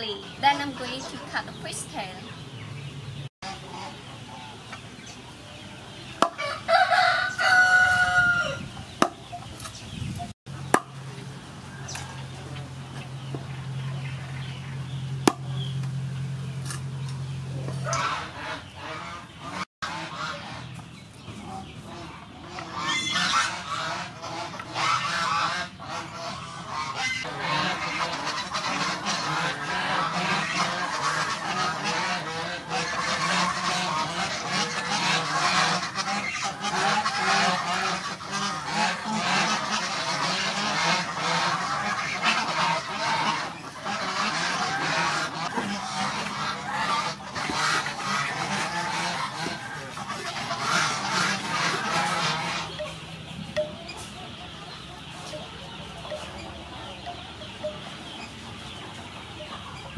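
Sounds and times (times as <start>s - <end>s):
fowl honking and chattering: 0.0s - 2.6s, 3.4s - 59.9s.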